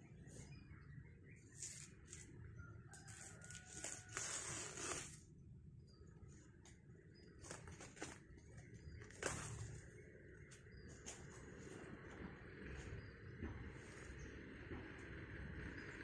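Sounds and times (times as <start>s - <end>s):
banana sheath rustling and tearing: 1.5s - 2.3s, 3.1s - 5.2s.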